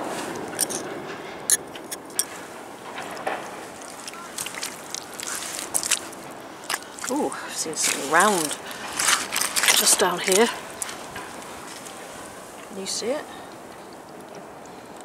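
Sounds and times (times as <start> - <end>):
footsteps on wet shingle: 1.7 - 12.3.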